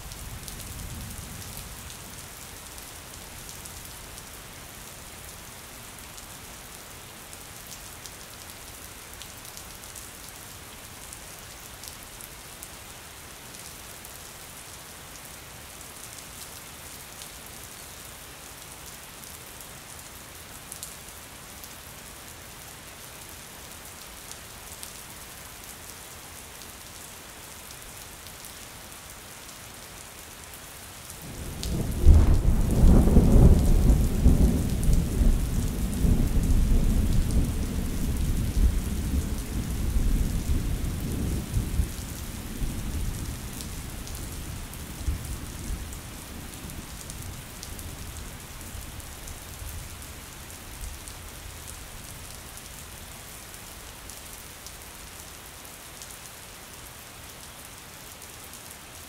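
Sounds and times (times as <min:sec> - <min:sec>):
rain pattering on a window: 0:30.2 - 0:59.0
thunder rolling: 0:31.8 - 0:35.2.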